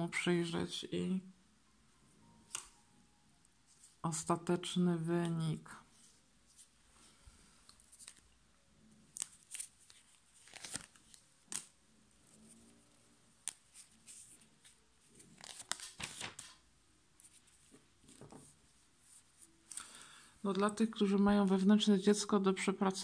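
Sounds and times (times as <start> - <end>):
cards sliding and snapping: 2.5 - 2.8, 7.7 - 8.2, 9.1 - 11.7, 13.4 - 16.6.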